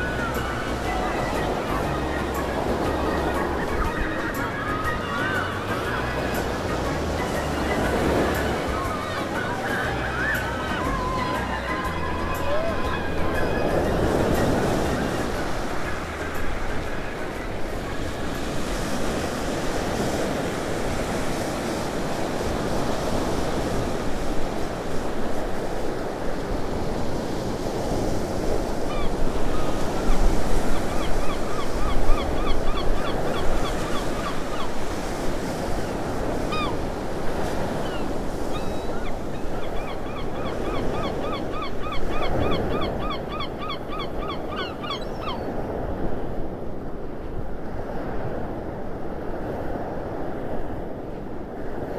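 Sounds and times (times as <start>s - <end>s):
bird calling: 0.0s - 15.7s, 36.3s - 36.9s, 37.6s - 45.6s
sea waves washing on beach: 0.0s - 51.9s.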